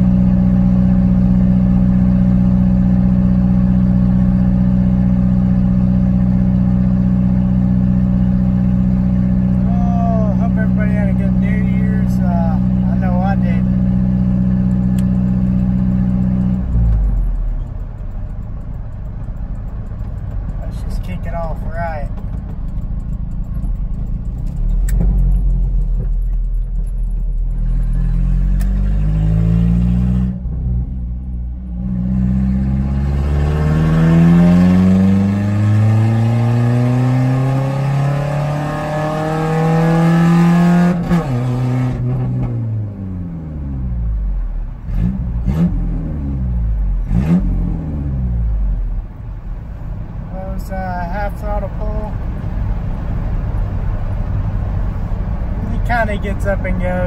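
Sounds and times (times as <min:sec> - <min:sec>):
truck engine revving at full throttle: 0:27.5 - 0:30.8, 0:31.7 - 0:44.1, 0:44.8 - 0:48.8.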